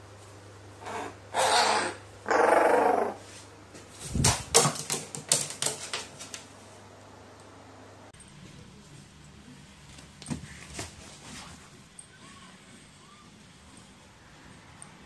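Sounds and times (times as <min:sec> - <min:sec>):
bird claws clicking and knocking: 0:04.2 - 0:06.4.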